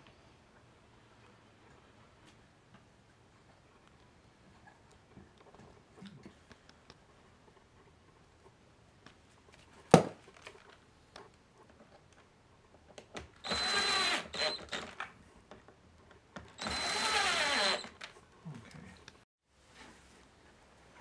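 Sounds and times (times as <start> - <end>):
drill driving screws into wood: 13.4 - 15.1, 16.6 - 18.1.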